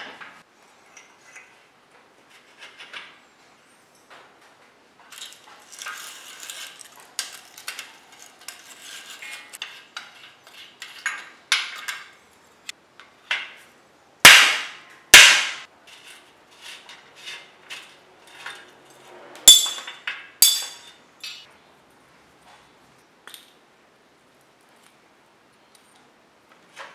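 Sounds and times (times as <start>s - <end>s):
tools clicking and scraping: 5.1s - 12.2s, 15.9s - 21.5s
hammer striking metal ringing: 19.5s - 21.4s
ringing metal clinks: 19.5s - 21.4s.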